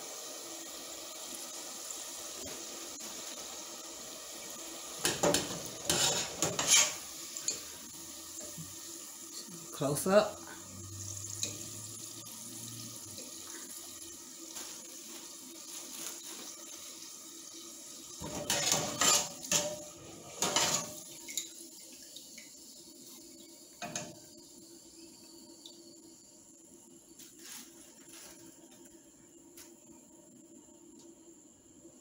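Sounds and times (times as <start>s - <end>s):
oil sizzling in a pot: 0.0s - 32.0s
metal scraping against pot: 5.1s - 7.8s, 18.2s - 21.0s.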